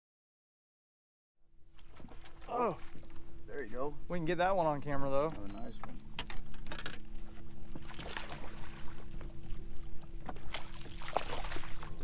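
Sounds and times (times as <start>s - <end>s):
steady low hum: 1.4s - 12.0s
fish thrashing water splashing: 7.8s - 9.1s, 10.3s - 12.0s.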